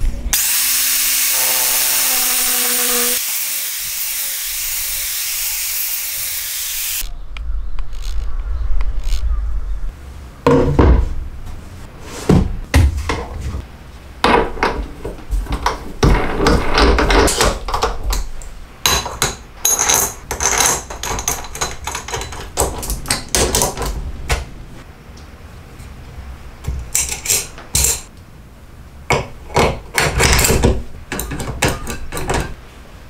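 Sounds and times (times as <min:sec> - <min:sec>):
wood and metal parts knocking: 0:14.2 - 0:24.4, 0:29.1 - 0:32.6.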